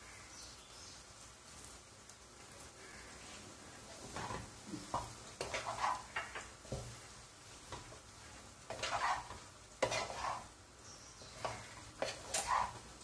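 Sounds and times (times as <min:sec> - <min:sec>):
rice frying: 0:00.0 - 0:13.0
spatula scraping pot: 0:04.1 - 0:06.5, 0:08.7 - 0:10.6, 0:11.3 - 0:13.0.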